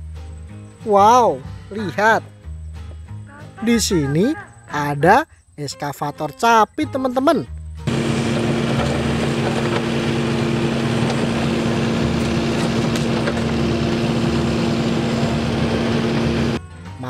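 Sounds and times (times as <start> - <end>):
excavator diesel engine running: 7.9 - 16.6.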